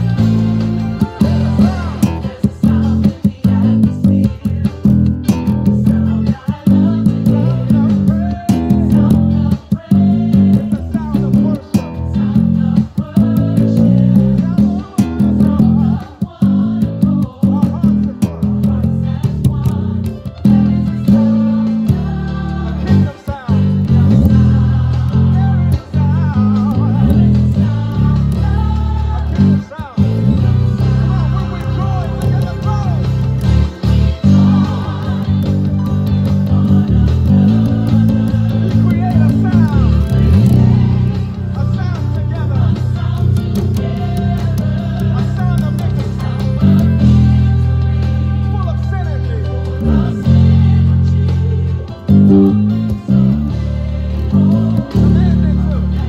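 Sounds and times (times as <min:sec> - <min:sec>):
drums: 0:00.0 - 0:56.0
electric bass guitar line: 0:00.0 - 0:56.0
choir singing: 0:01.1 - 0:03.9, 0:12.0 - 0:17.4, 0:18.7 - 0:25.9, 0:26.8 - 0:33.2, 0:33.9 - 0:41.6, 0:42.4 - 0:48.5, 0:49.8 - 0:56.0.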